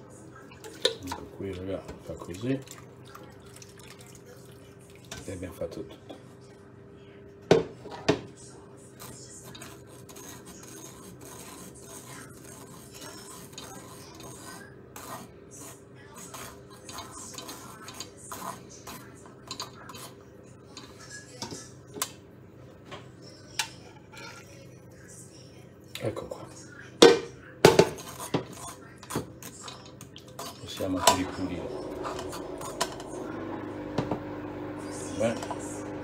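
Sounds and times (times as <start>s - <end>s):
faint hum: 0.0s - 27.6s.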